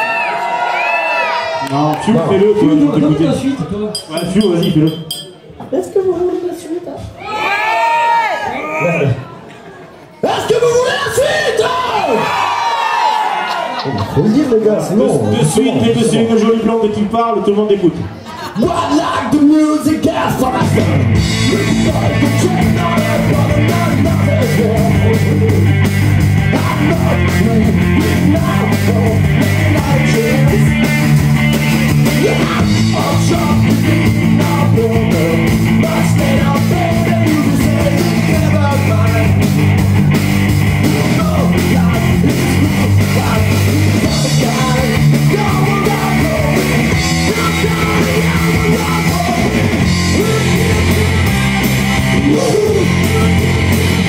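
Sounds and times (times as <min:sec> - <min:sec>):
bass guitar: 0:19.9 - 0:54.0
drum kit: 0:20.0 - 0:54.0
person singing: 0:20.4 - 0:25.8, 0:26.4 - 0:31.2, 0:32.0 - 0:39.4, 0:40.8 - 0:51.4, 0:52.1 - 0:53.9
electric guitar: 0:20.6 - 0:54.0.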